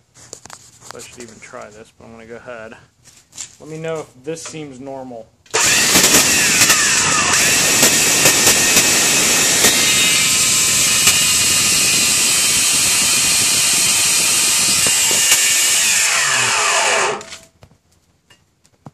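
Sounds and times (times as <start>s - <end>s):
electric motor whining: 5.5s - 17.5s
motor brushes cracking: 5.5s - 17.6s.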